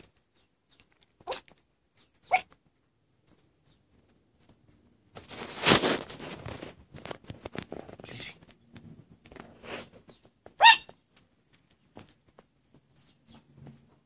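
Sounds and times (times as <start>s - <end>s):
puppy yapping: 1.2s - 1.5s, 2.2s - 2.6s, 10.6s - 11.0s
rustling noise: 2.4s - 14.0s.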